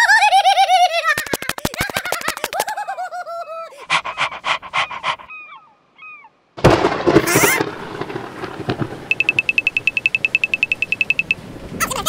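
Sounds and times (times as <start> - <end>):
chirpy gibberish voice sounds: 0.0 - 5.6
thunderclap: 6.6 - 11.8
steady rain: 6.6 - 12.0.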